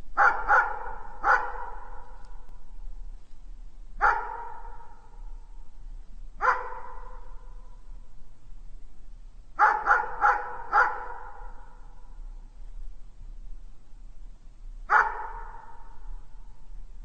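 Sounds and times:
dog barking: 0.2 - 2.4, 4.0 - 5.2, 6.4 - 7.5, 9.6 - 11.9, 14.9 - 16.0.

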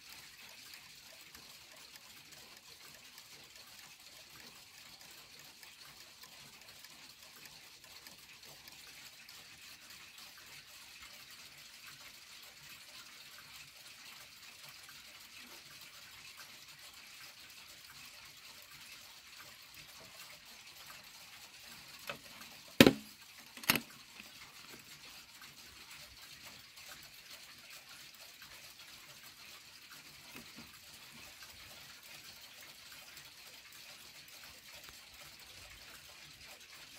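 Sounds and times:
clock ticking: 0.0 - 10.0, 21.7 - 25.9
knocks on wooden clock case: 22.8 - 23.8.

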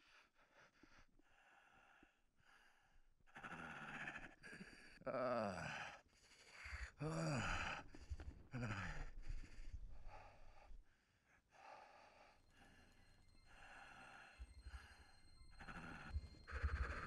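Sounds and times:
man breathing hard: 5.6 - 17.0.

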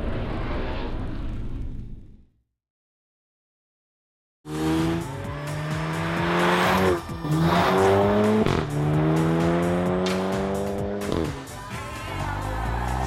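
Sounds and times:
car engine accelerating: 4.5 - 11.5.

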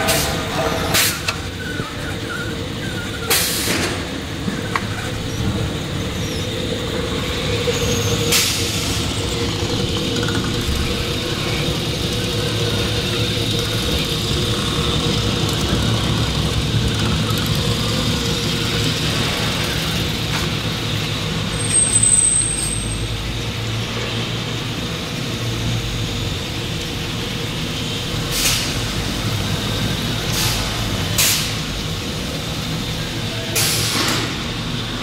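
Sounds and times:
high-pitched squeal: 0.0 - 16.2, 21.4 - 23.2
machine humming: 4.1 - 21.4.

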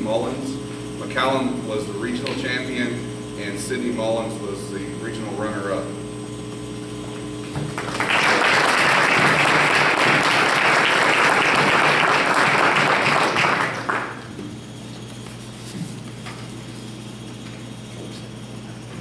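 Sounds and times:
group of people applauding: 7.7 - 14.3.

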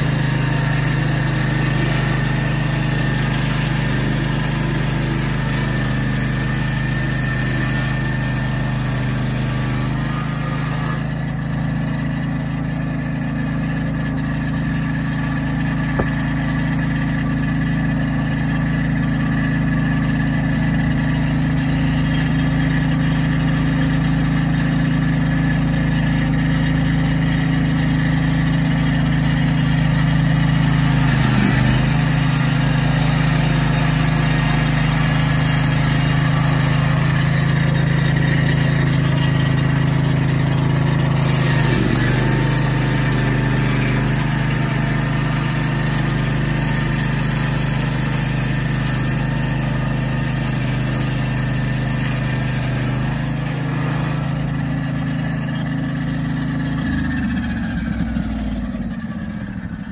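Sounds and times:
sawmill engine running: 0.0 - 59.9.

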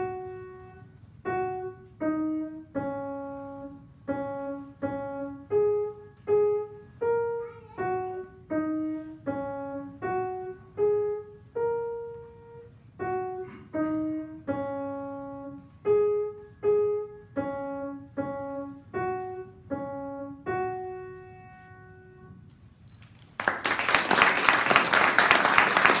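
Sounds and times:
grand piano melody: 0.0 - 22.5
audience applause: 23.4 - 26.0.

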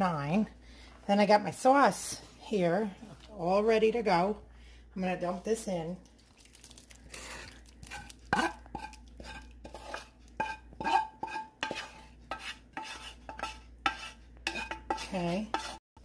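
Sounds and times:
utensil scraping and knocking pan: 7.9 - 15.8.

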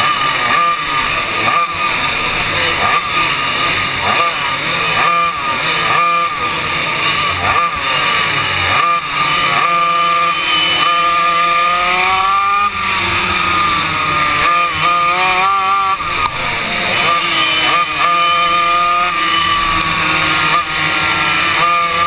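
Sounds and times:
racing kart engines: 0.0 - 22.0.

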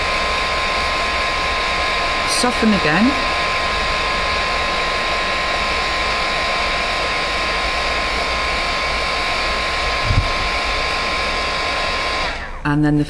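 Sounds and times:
heat gun blowing with whine: 0.0 - 12.7
low bump: 10.0 - 10.5.

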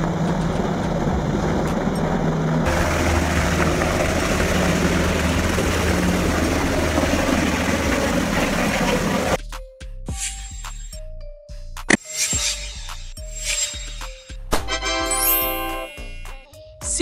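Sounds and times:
deep helicopter rotor drone: 0.0 - 9.4
helicopter rotors and turbines: 0.0 - 9.4
music with chiming clinks: 9.4 - 17.0.

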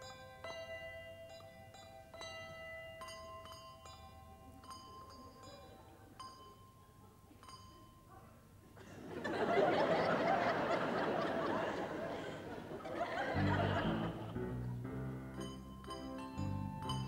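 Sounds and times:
handbell rings: 0.0 - 8.2
audience laughing: 8.8 - 14.8.

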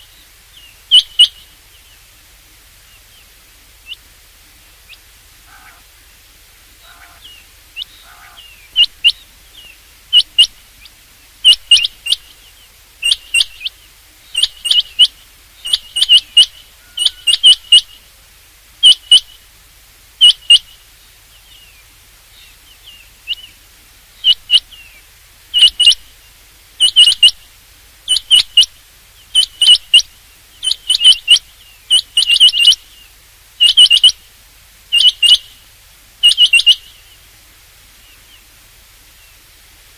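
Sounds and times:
quail calling sharp high notes: 5.4 - 5.9, 6.8 - 9.2, 10.1 - 10.6, 11.4 - 12.3, 13.0 - 13.7, 14.3 - 18.0, 18.8 - 19.4, 20.2 - 20.8, 24.2 - 24.8, 25.5 - 26.2, 26.8 - 27.4, 28.1 - 32.9, 33.6 - 34.2, 34.9 - 35.6, 36.2 - 37.0.

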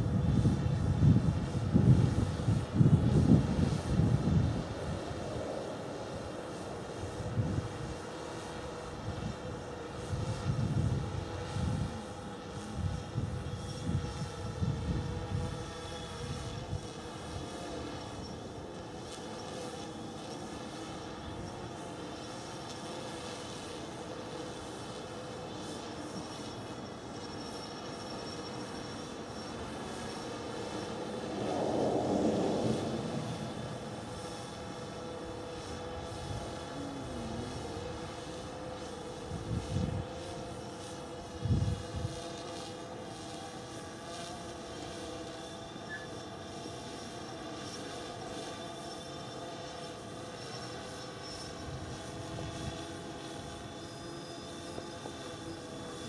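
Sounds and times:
wind buffeting microphone: 0.0 - 5.3, 10.0 - 17.0, 30.5 - 37.7, 41.4 - 42.2
drone rotors whirring: 0.0 - 56.0
low rumbles: 31.2 - 34.7.

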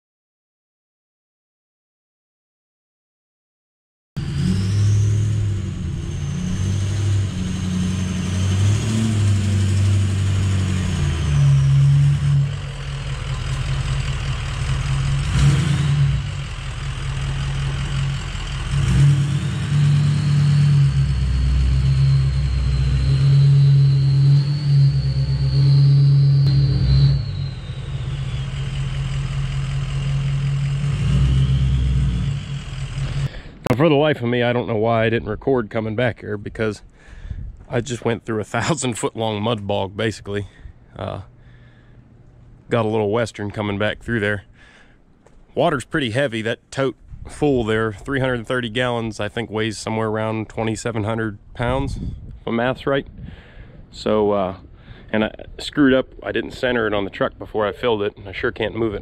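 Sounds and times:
vehicle engine running: 4.2 - 33.7
thin high whine: 20.4 - 30.6.

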